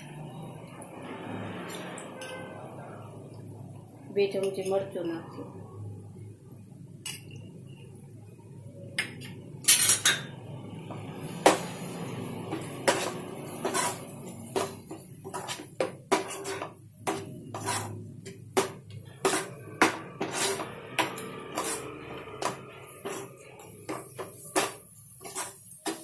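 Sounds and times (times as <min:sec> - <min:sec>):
metal spoon scraping frying pan: 0:01.2 - 0:02.7, 0:11.0 - 0:26.0.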